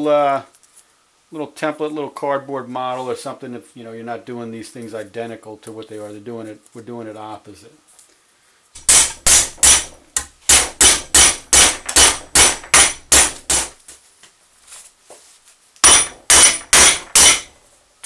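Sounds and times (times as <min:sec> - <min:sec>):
hammer striking steel bar: 0:08.8 - 0:13.7, 0:15.8 - 0:17.5.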